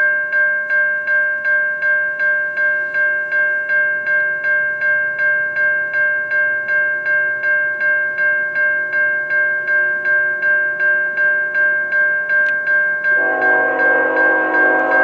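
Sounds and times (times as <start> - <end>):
locomotive bell ringing: 0.0 - 15.0
train air horn chord: 13.2 - 15.0.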